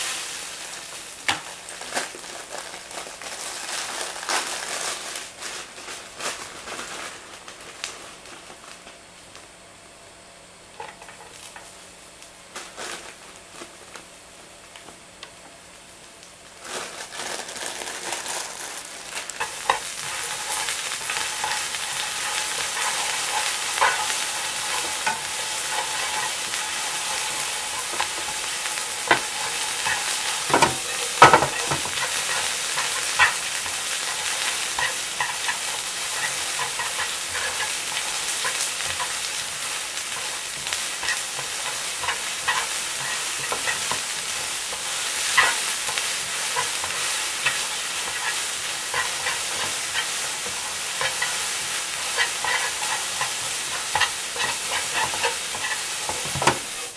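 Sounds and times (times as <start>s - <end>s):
noodles sizzling in frying pan: 0.0s - 56.9s.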